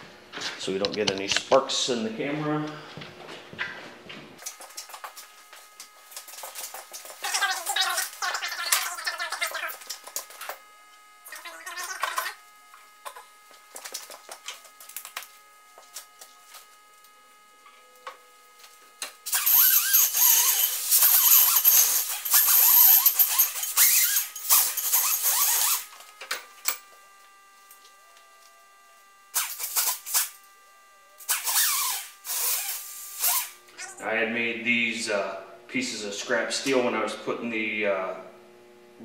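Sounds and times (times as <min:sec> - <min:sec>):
hand grinder grinding steel: 0:19.3 - 0:26.1, 0:31.2 - 0:34.0.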